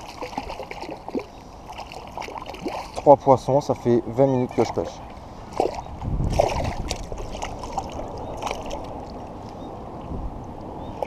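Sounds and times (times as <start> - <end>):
fish splashing at water surface: 0.0 - 3.1, 5.5 - 9.2.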